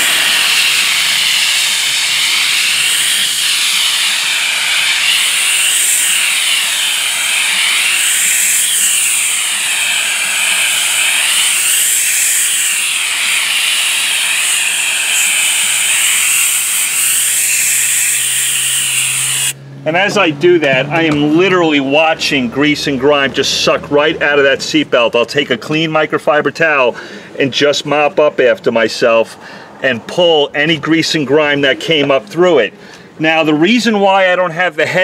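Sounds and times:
steam cleaner hissing: 0:00.0 - 0:19.6.

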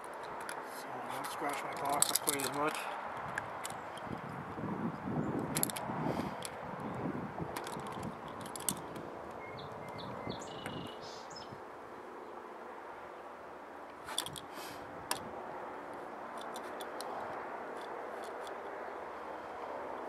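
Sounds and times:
blade clicks: 0:00.0 - 0:04.3, 0:05.5 - 0:06.6, 0:07.6 - 0:10.0, 0:16.3 - 0:17.2
bird chirps: 0:09.4 - 0:11.5.

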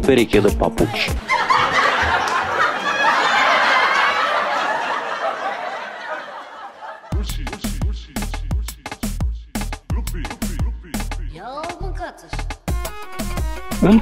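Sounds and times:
music with heavy drum beat: 0:00.0 - 0:01.2, 0:07.1 - 0:14.0
audience laughter: 0:00.9 - 0:07.5.

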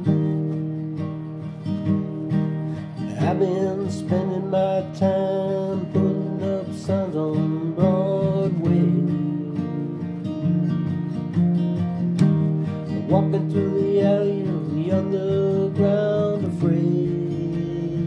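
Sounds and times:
acoustic guitar strumming: 0:00.0 - 0:18.0
person singing: 0:03.0 - 0:10.2, 0:12.8 - 0:18.0.

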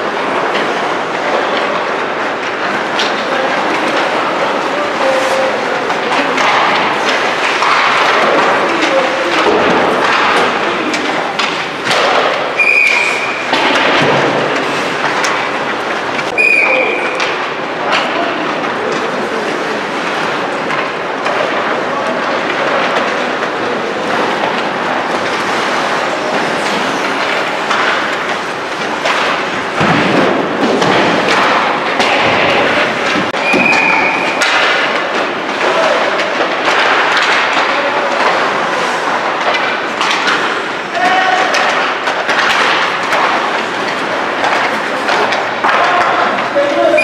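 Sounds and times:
pucks and sticks knocking boards: 0:00.0 - 0:47.0
skates scraping on ice: 0:00.0 - 0:47.0
whistle blast: 0:12.6 - 0:13.4, 0:16.4 - 0:17.0.

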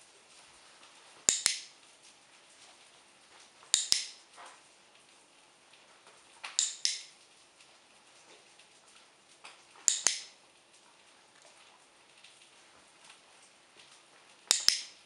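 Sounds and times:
dog-training clicker clicking: 0:01.3 - 0:01.7, 0:03.7 - 0:04.2, 0:06.6 - 0:07.1, 0:09.9 - 0:10.3, 0:14.5 - 0:15.0.

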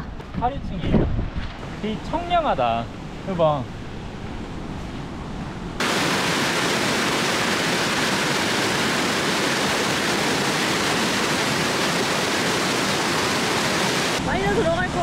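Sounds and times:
waterfall rushing over rocks: 0:05.8 - 0:15.0.

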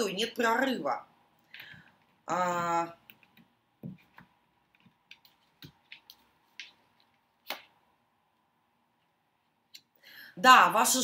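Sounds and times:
cards being shuffled: 0:03.1 - 0:07.8.

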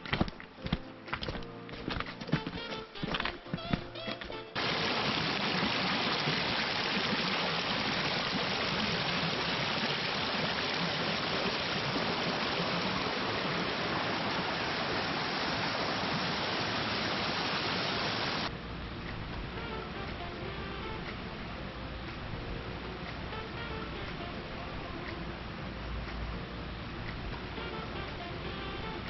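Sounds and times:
stream rushing over rocks: 0:04.6 - 0:18.5.

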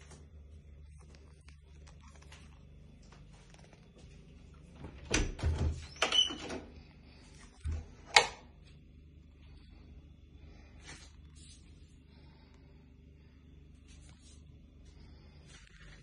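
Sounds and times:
door squeaking: 0:05.0 - 0:06.7.

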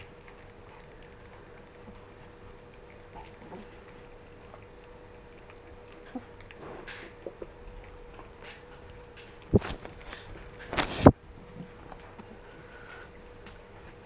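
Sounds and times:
faint steady hum: 0:00.0 - 0:14.0
puppies chewing and lapping: 0:00.0 - 0:14.0
short rustle: 0:09.5 - 0:11.1.

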